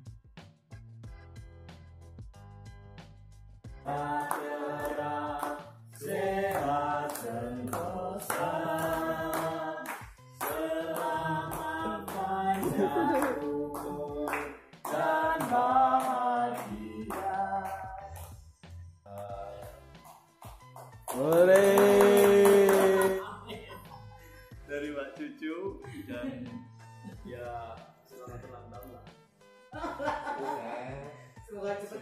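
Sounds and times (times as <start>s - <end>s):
people singing: 3.8s - 18.4s
clapping on the beat: 3.9s - 18.5s, 19.1s - 23.2s, 30.0s - 30.5s.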